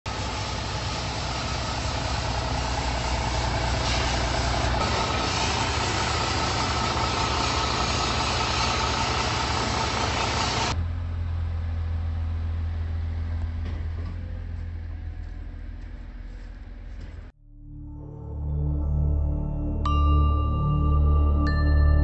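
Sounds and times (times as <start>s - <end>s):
diesel engine running: 0.0s - 17.3s.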